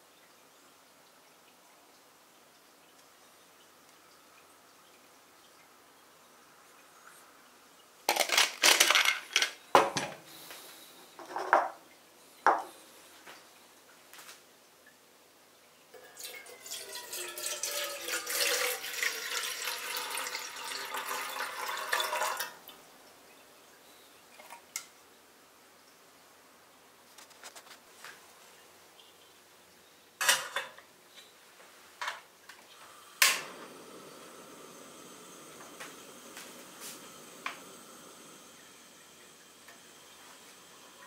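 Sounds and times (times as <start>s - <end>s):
water pouring into kettle: 15.9s - 22.8s, 32.5s - 41.0s.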